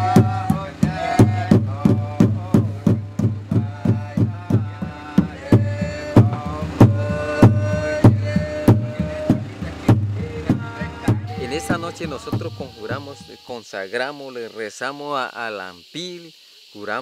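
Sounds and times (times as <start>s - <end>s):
slit drum beaten with mallets: 0.0s - 13.4s
voices singing: 0.0s - 17.0s.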